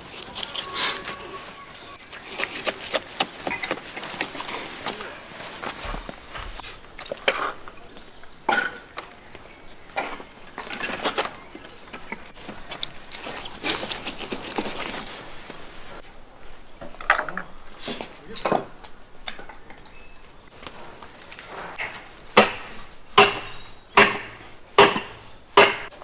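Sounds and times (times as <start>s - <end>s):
carcass scraping and knocking on wood: 2.0s - 7.6s.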